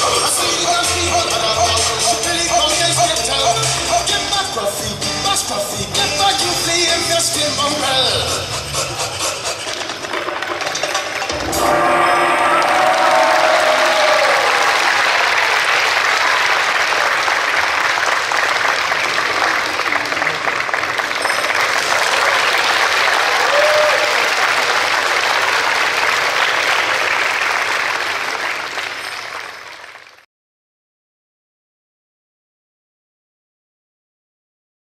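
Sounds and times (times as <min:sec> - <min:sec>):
audience applauding: 0:09.4 - 0:30.2.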